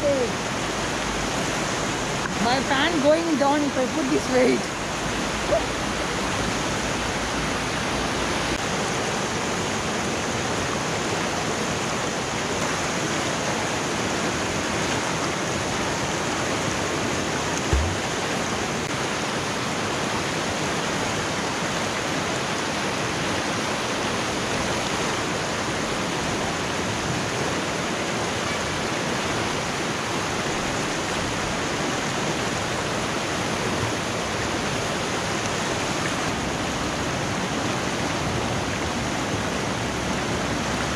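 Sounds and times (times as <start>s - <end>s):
river rapids rushing over rocks: 0.0s - 40.9s
low thump: 17.6s - 18.2s.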